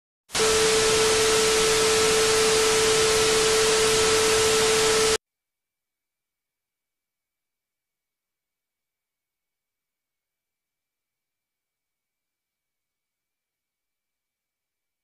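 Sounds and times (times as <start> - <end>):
steady mid-pitched tone: 0.4 - 5.2
television static hiss: 0.4 - 5.2.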